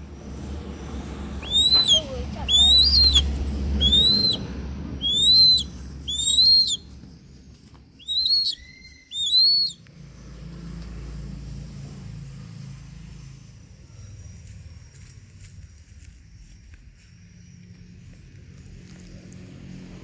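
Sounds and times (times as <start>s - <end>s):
low steady rumble: 0.0s - 16.7s
hawk whistled calls: 1.3s - 6.9s, 8.0s - 9.8s.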